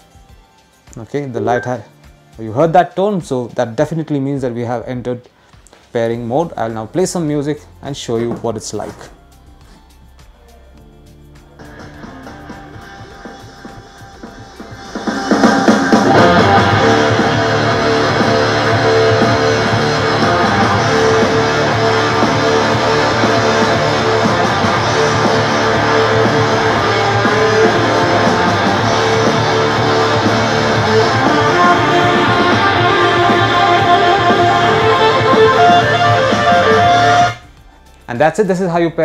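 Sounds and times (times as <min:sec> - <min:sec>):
guitar music through a soundbar: 0:11.4 - 0:37.4.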